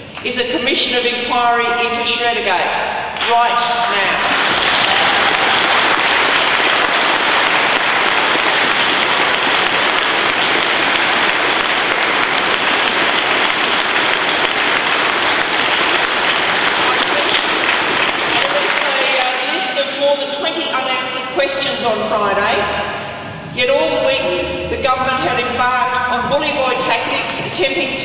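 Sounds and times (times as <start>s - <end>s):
audience clapping: 3.2s - 19.8s.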